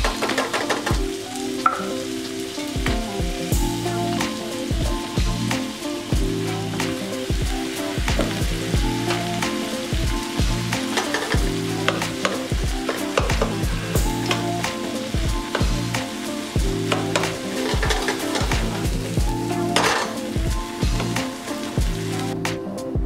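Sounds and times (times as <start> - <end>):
food sizzling in frying pan: 0.0 - 22.9
background music with beat: 0.0 - 23.0
tongs clicking and scraping: 10.7 - 14.6.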